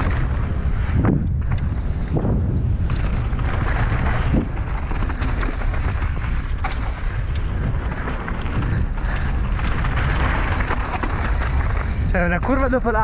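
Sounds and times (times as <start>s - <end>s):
bike tyres rolling on dirt trail: 0.0s - 13.0s
sharp clicks and ticks: 0.0s - 13.0s
wind buffeting the microphone: 0.0s - 13.0s.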